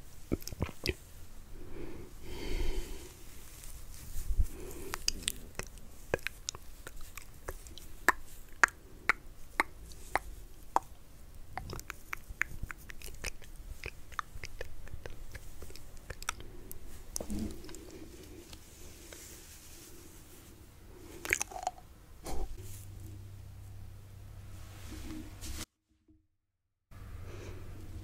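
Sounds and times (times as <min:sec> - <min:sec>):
wet mouth clicks and smacks: 0:00.3 - 0:01.0, 0:04.9 - 0:18.6, 0:21.2 - 0:21.8.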